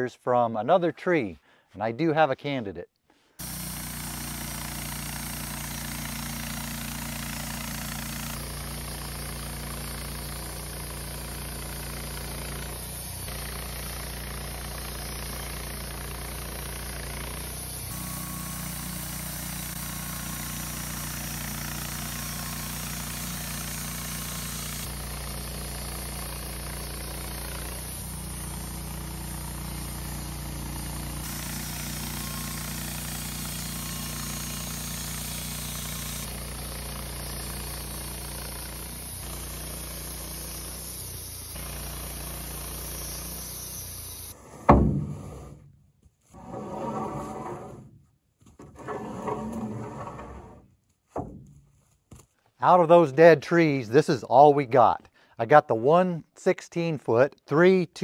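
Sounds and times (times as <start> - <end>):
sawmill engine running: 3.4 - 45.6
loud knock: 44.7 - 45.4.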